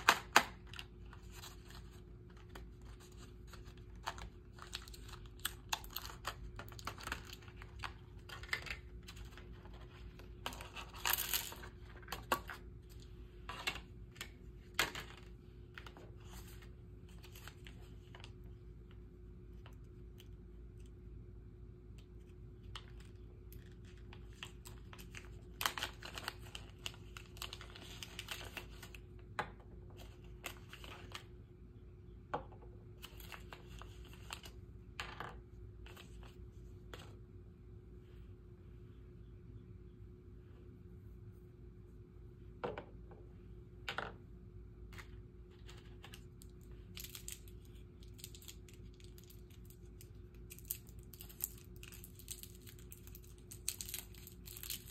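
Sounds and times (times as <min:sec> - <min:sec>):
faint steady hum: 0:00.0 - 0:54.9
packaging rustling and tearing: 0:23.6 - 0:29.0, 0:45.6 - 0:54.9.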